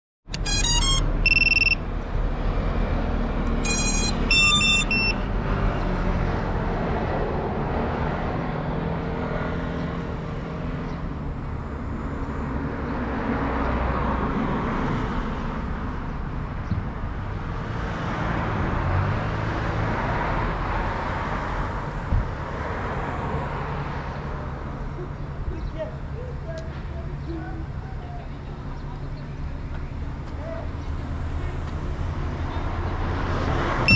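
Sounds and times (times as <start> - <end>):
road traffic: 0.2 - 33.9
wind: 0.2 - 33.9
vehicles passing: 0.3 - 33.9
short electronic beeps: 0.4 - 1.9, 3.6 - 5.3.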